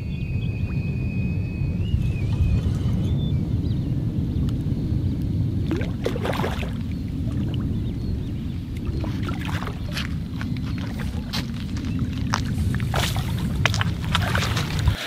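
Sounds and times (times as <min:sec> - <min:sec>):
wind rumble on microphone: 0:00.0 - 0:15.0
fish splashing at the surface: 0:05.7 - 0:07.6, 0:08.8 - 0:15.0.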